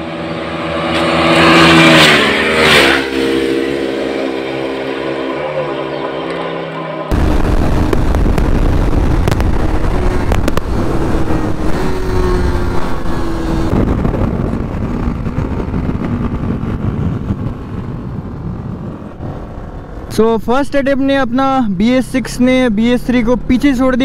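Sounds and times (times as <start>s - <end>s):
motorcycle engine at full throttle: 0.0s - 20.2s
wind roar on microphone: 7.1s - 20.1s.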